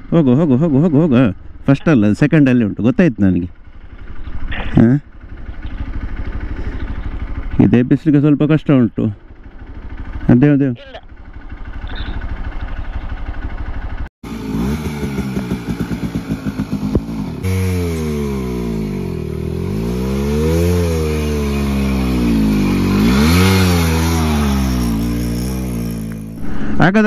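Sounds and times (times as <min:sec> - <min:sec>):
two-stroke motorcycle engine revving: 0:03.8 - 0:07.9, 0:11.1 - 0:27.0.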